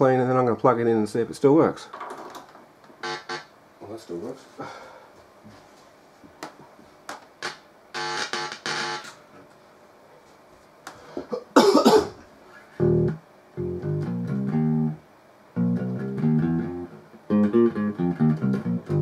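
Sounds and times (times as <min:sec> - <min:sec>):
plucked strings through amplifier: 0:12.8 - 0:15.0, 0:15.6 - 0:19.0.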